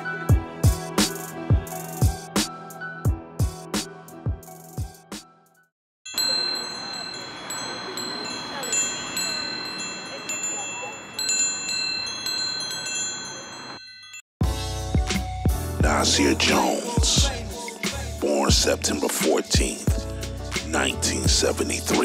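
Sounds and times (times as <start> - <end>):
chimes tinkling: 6.1 - 14.3.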